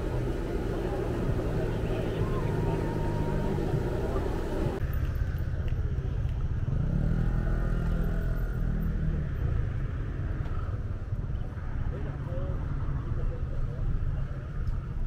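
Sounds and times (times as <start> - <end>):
engine passing close: 0.0 - 4.8
low rumble of traffic: 0.0 - 15.0.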